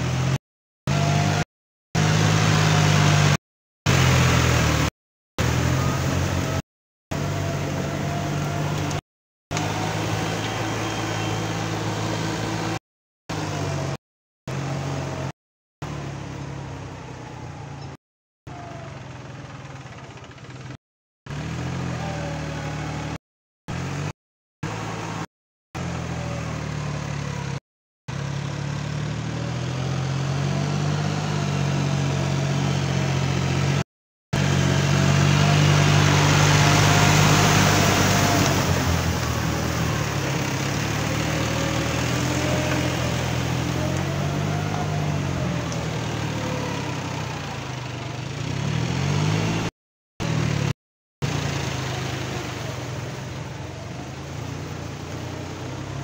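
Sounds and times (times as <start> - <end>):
tractor diesel engine under load: 0.0 - 56.0
churning mud and water: 2.0 - 17.7, 34.4 - 56.0.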